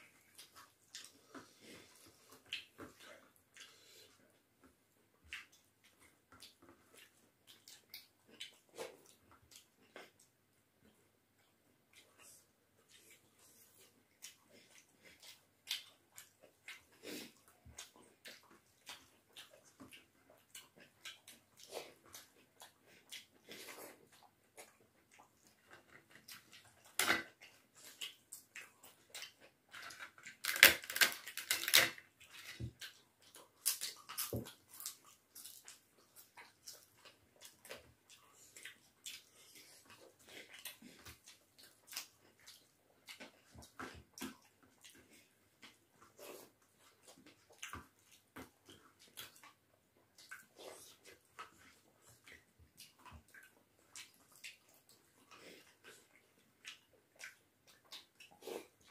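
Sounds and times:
chewing and lip smacking: 0.0s - 58.9s
wet squishing of rice: 0.0s - 58.9s
crisp cracks: 29.8s - 32.0s.

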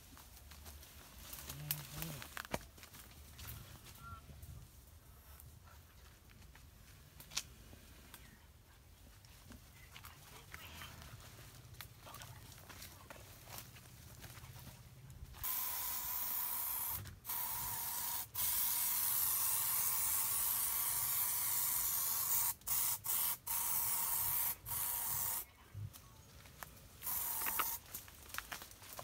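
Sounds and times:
aerosol spray can hissing: 15.4s - 25.5s, 27.0s - 27.8s.

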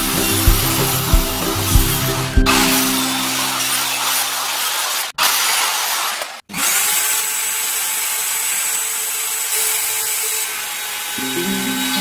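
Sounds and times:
hiss of wood cutting: 0.0s - 6.4s
router motor whining: 3.2s - 12.0s.

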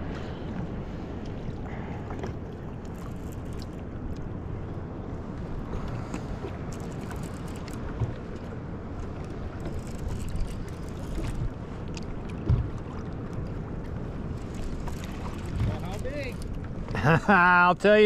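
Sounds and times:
light wind: 0.0s - 18.0s
low rumble of water: 0.0s - 18.0s
soft knocks on kayak: 12.4s - 12.8s.

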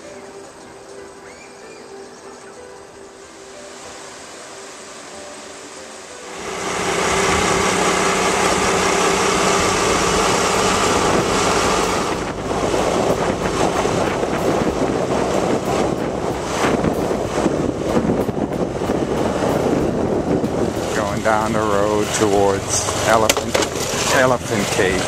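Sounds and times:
motorcycle engine hum: 4.7s - 25.0s
wind on microphone: 6.3s - 25.0s.

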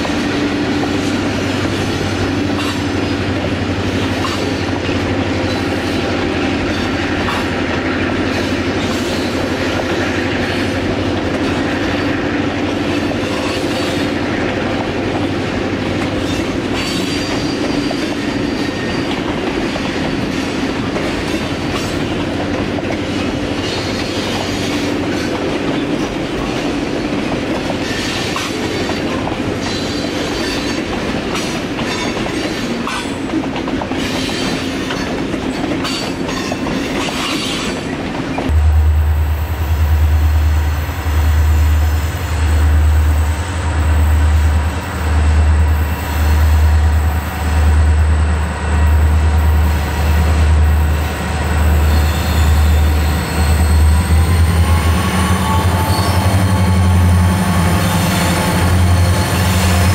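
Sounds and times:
freight train rolling past: 0.0s - 59.9s
high wheel squeal: 50.7s - 59.9s.

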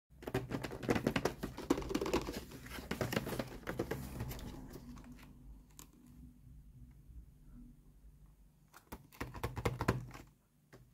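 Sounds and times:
fingers tapping on cardboard boxes: 0.2s - 4.4s, 8.9s - 10.3s.

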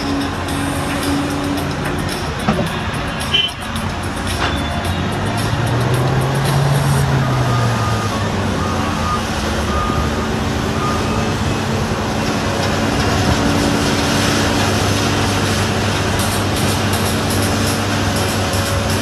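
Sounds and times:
heavy machine engine running: 0.0s - 19.0s
reversing alarm beeps: 6.8s - 11.7s.

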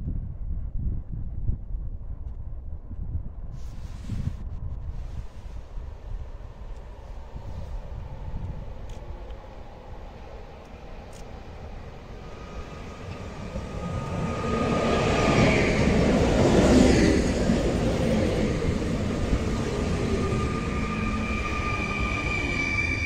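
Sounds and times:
train rumble and wheel noise: 3.6s - 23.0s
train whine: 5.3s - 23.0s.

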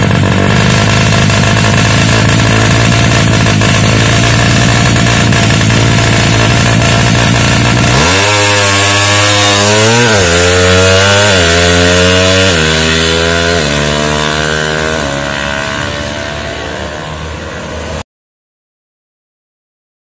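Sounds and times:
motorcycle engine accelerating: 0.0s - 18.0s.

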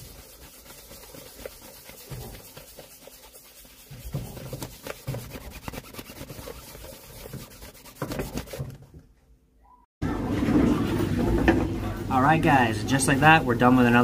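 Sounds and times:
cloth buffing leather sole: 0.0s - 8.7s.

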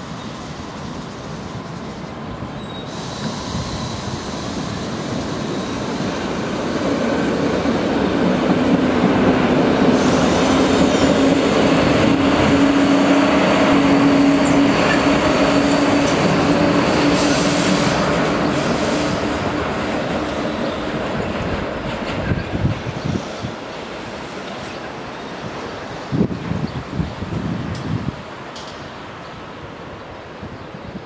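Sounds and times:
electric train passing: 0.0s - 31.0s.

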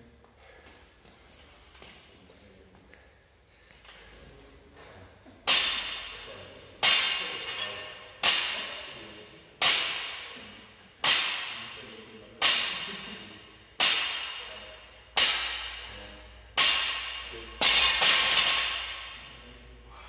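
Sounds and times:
barbell plates hitting floor: 5.4s - 6.2s, 16.6s - 19.3s.

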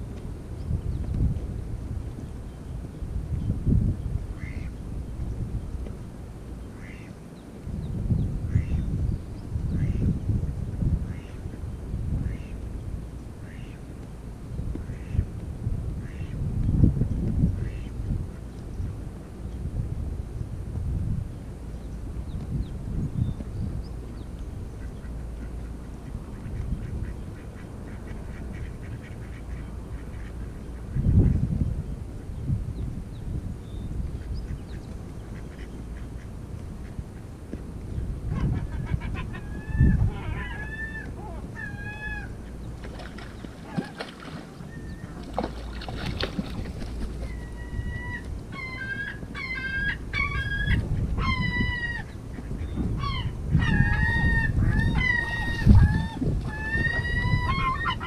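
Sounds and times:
wind rumbling on microphone: 0.0s - 58.0s
gulls calling: 38.3s - 58.0s.

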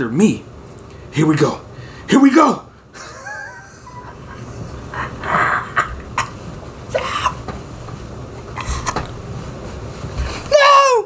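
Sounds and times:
man laughing: 2.9s - 6.2s.

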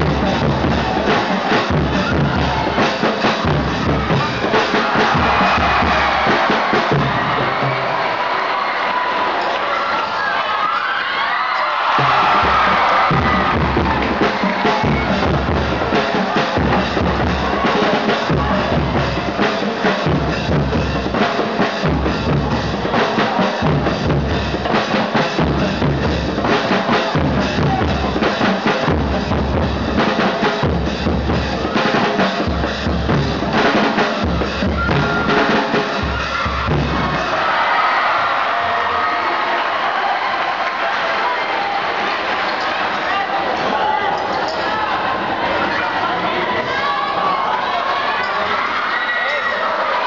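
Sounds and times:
bass drum: 0.0s - 7.7s, 12.0s - 37.5s
drums beating: 0.0s - 9.7s, 11.8s - 45.9s
crowd noise: 0.0s - 50.0s.

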